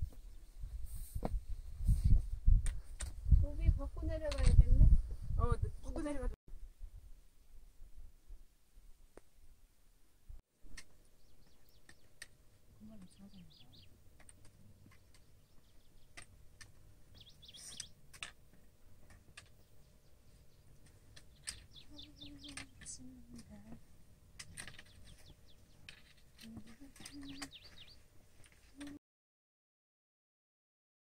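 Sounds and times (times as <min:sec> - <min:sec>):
small birds chirping: 0:10.6 - 0:29.0.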